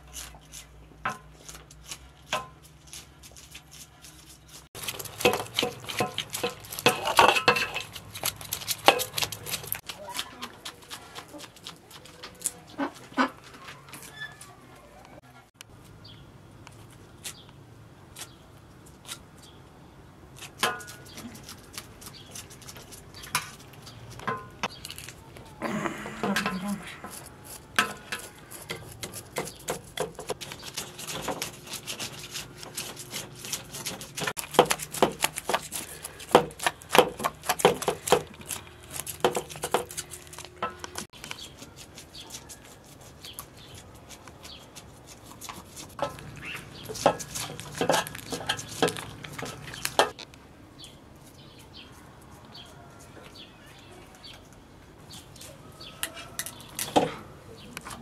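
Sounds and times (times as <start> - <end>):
knife scraping fish scales: 0.0 - 11.8, 27.0 - 50.1.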